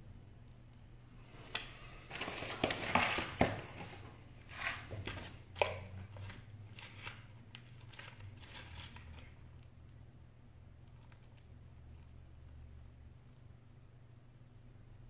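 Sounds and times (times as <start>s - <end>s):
crinkling handling noise: 0.5s - 10.0s.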